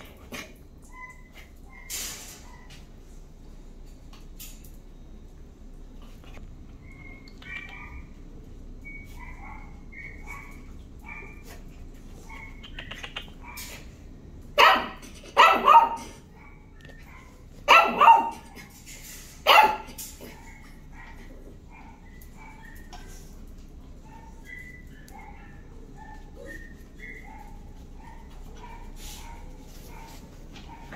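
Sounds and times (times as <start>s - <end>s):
dog barking: 7.0s - 8.1s, 9.2s - 11.5s, 14.6s - 18.6s, 19.4s - 22.8s, 25.0s - 26.3s, 27.0s - 30.9s.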